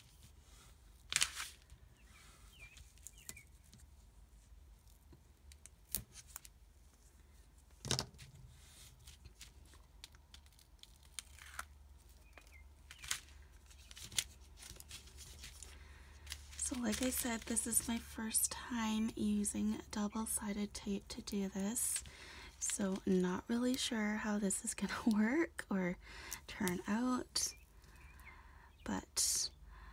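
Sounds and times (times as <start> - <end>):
tape ripping and peeling: 1.1 - 1.6, 9.2 - 15.6.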